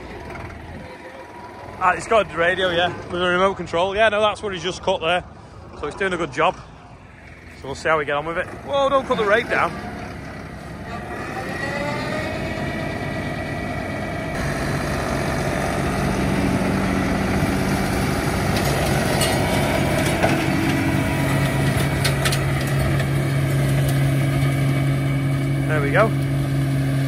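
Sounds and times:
tractor engine droning: 0.0s - 27.0s
flail mower cutting grass: 8.3s - 27.0s.

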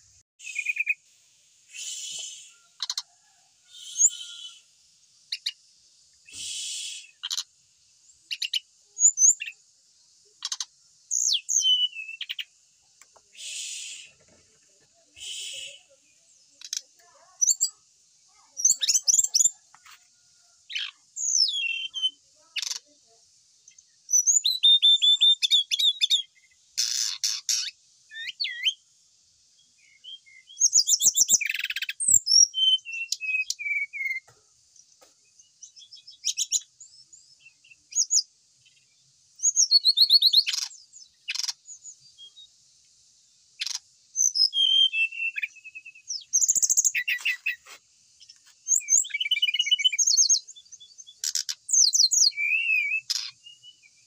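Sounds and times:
bird whistles and trills: 0.4s - 1.0s, 1.7s - 3.0s, 6.2s - 7.4s, 10.4s - 12.5s, 15.2s - 15.9s, 20.8s - 22.8s, 24.1s - 28.8s, 30.0s - 34.3s, 39.4s - 41.6s, 43.6s - 47.7s, 48.7s - 54.0s.

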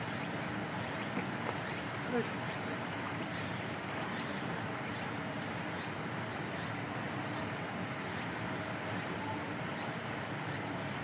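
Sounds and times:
outdoor rushing ambience: 0.0s - 11.0s.

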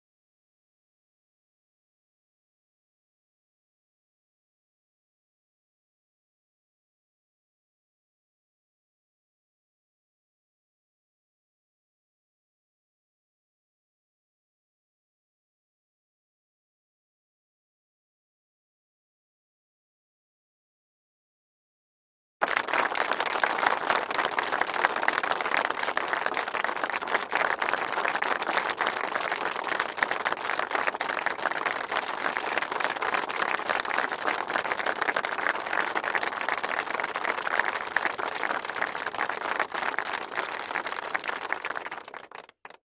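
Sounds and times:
audience applause: 22.4s - 42.8s.

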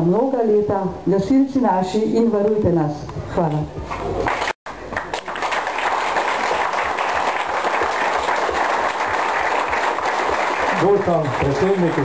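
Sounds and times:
crowd applauding: 3.9s - 12.0s.

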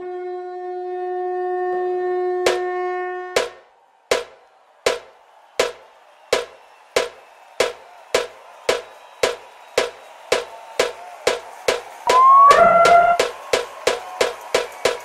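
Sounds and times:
drum strikes: 2.5s - 2.7s, 3.3s - 5.8s, 6.4s - 15.0s
faint held tone: 12.1s - 13.2s.

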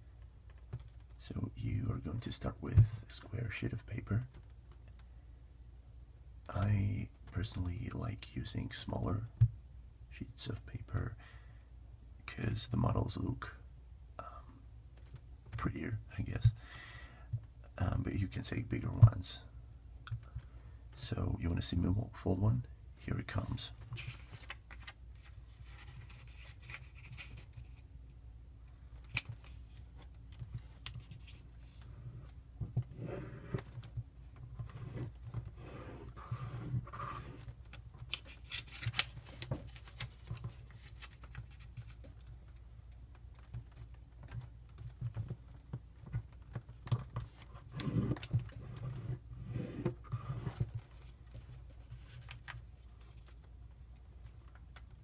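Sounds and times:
paper being folded and creased: 23.9s - 27.8s, 34.6s - 42.6s, 46.3s - 53.5s.

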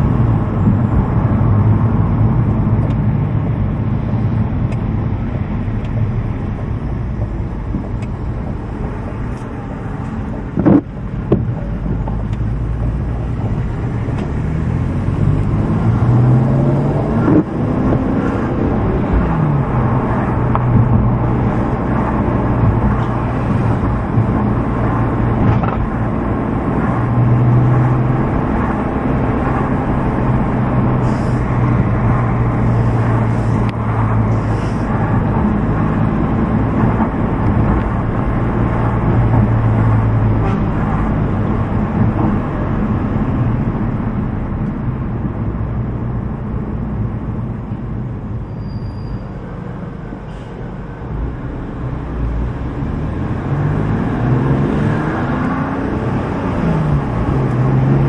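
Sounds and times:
car engine: 0.0s - 58.0s
road noise inside car: 0.0s - 58.0s.

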